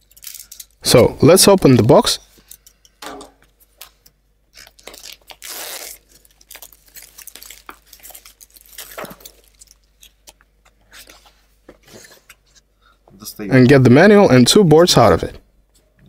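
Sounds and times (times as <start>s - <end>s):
plastic wrapping crinkling: 0.0s - 0.8s, 3.6s - 11.4s.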